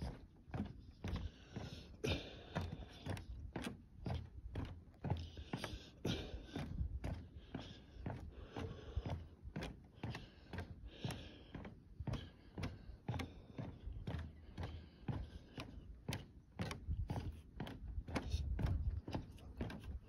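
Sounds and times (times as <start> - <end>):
footsteps on wooden boardwalk: 0.0 - 20.0.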